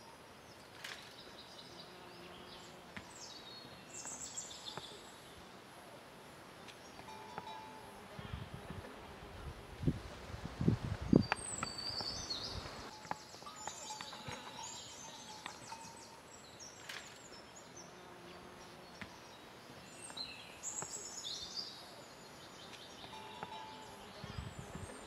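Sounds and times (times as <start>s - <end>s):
birds chirping and trilling: 0.0s - 5.5s, 11.1s - 25.0s.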